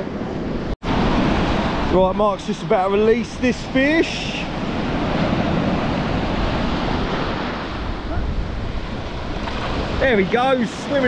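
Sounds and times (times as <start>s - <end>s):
surf breaking on beach: 0.8s - 11.0s
wind on microphone: 3.0s - 10.4s.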